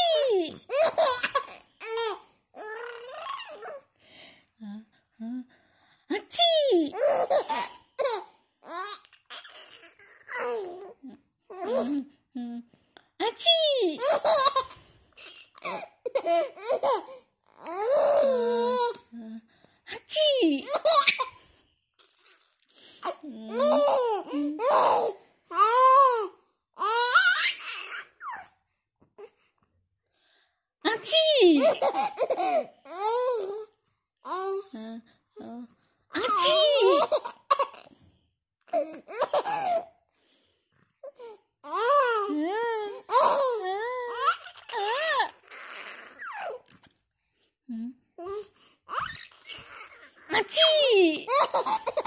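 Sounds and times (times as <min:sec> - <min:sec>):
baby laughing: 0:00.0 - 0:03.8, 0:06.3 - 0:12.0, 0:14.0 - 0:19.0, 0:20.6 - 0:22.2, 0:23.0 - 0:28.6, 0:31.6 - 0:33.6, 0:36.2 - 0:37.9, 0:38.7 - 0:39.9, 0:41.0 - 0:46.7, 0:48.2 - 0:52.0.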